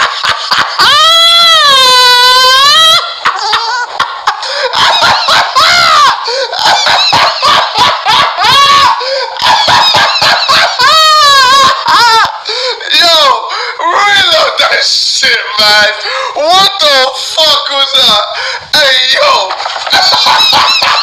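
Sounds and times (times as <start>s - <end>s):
man laughing in squealing whoops: 0.0s - 12.5s, 19.6s - 21.0s.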